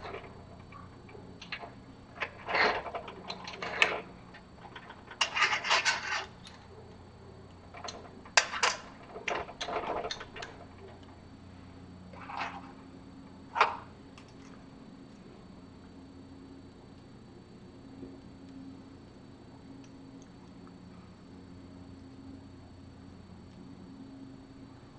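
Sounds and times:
metal parts clicking and clinking: 0:00.0 - 0:06.7, 0:07.7 - 0:11.1
metal parts scraping: 0:01.4 - 0:06.6.

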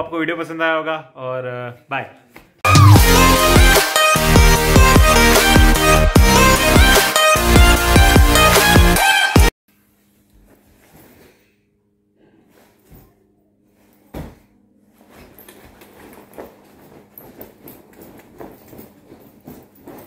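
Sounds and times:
clothing rustling: 0:09.7 - 0:11.6, 0:12.4 - 0:20.0.

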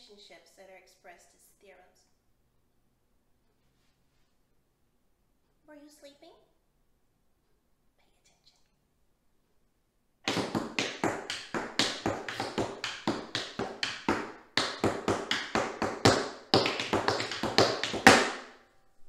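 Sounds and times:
loud foot stamp: 0:10.3 - 0:18.6
tap shoes on hard floor: 0:10.3 - 0:18.6.

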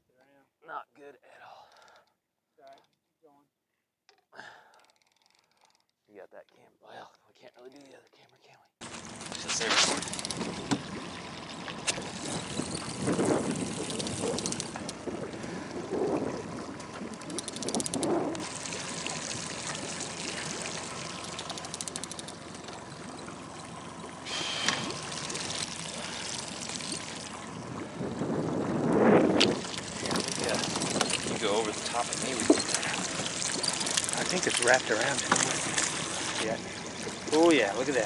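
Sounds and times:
water lapping against boat: 0:08.8 - 0:38.0
rapid ticking: 0:17.1 - 0:23.3.

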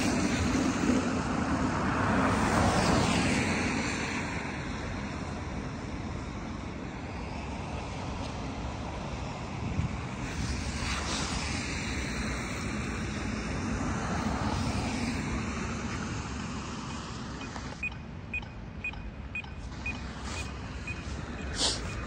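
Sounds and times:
passing car traffic: 0:00.0 - 0:22.0
wind: 0:00.0 - 0:22.0
crossing signal ticking: 0:17.3 - 0:22.0.

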